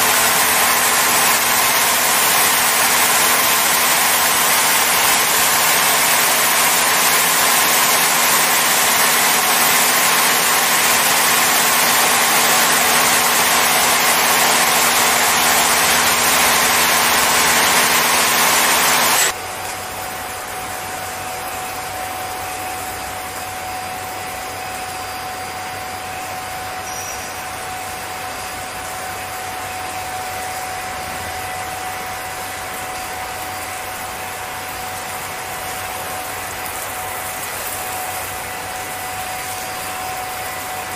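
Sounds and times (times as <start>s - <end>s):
high-pressure water spray hissing: 0.0s - 19.4s, 21.2s - 40.9s
machine motor hum: 0.0s - 19.4s
thin machine whine: 0.0s - 40.9s.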